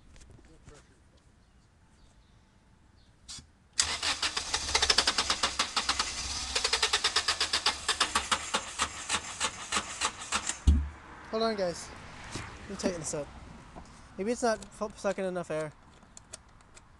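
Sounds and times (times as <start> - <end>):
car starter cranking engine: 3.8 - 10.6.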